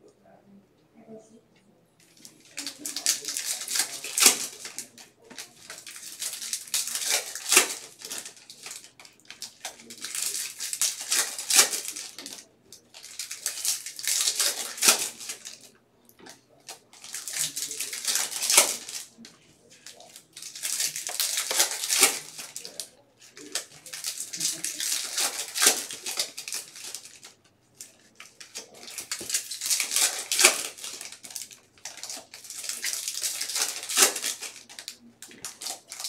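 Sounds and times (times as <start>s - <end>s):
foil wrappers crinkling and ripping: 2.1s - 36.0s
cards sliding and shuffling: 2.9s - 12.4s, 17.0s - 19.1s, 19.7s - 27.3s, 28.3s - 34.7s.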